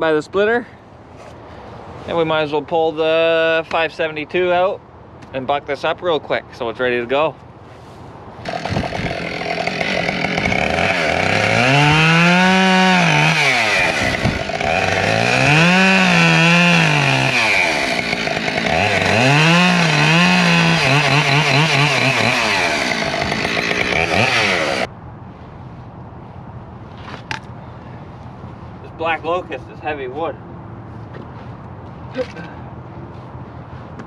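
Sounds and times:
chainsaw cutting logs: 0:08.4 - 0:24.9.

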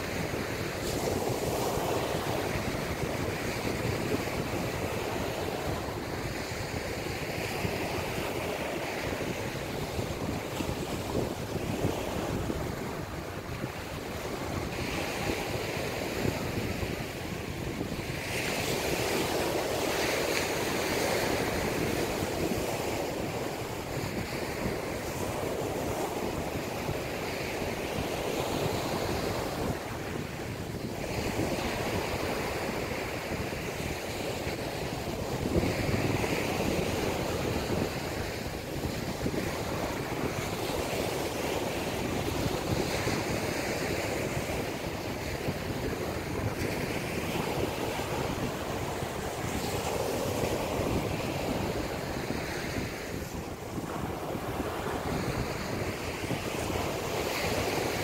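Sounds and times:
waves breaking on beach: 0:00.0 - 0:58.0
wind rumble on microphone: 0:00.0 - 0:58.0.

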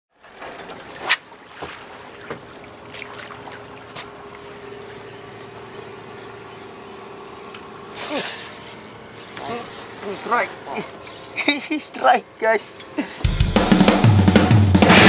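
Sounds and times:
water lapping: 0:00.1 - 0:13.3
wind: 0:00.1 - 0:13.3
steady engine hum: 0:00.5 - 0:15.0
fishing reel clicking: 0:08.0 - 0:12.4.

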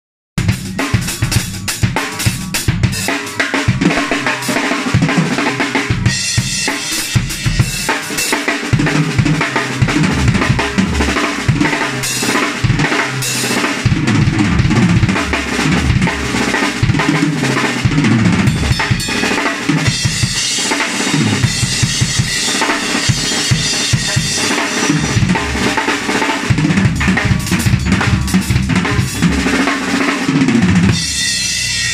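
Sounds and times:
drum kit playing: 0:00.4 - 0:31.9
cymbals crashing: 0:18.5 - 0:26.3, 0:31.0 - 0:31.9.

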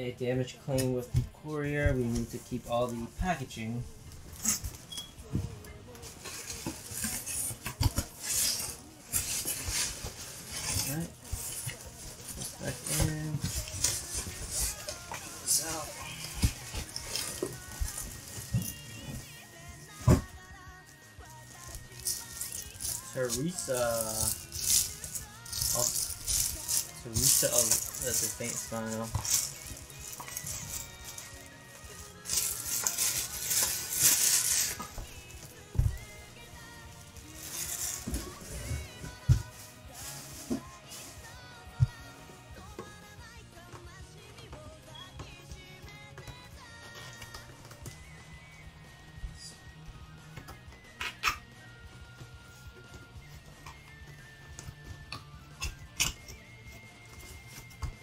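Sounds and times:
cardboard box rustling: 0:25.6 - 0:31.4.

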